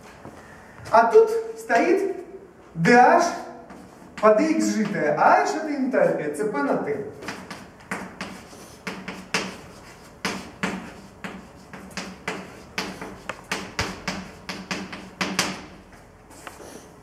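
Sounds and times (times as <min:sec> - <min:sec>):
chalk tapping on a blackboard: 0:07.2 - 0:16.6.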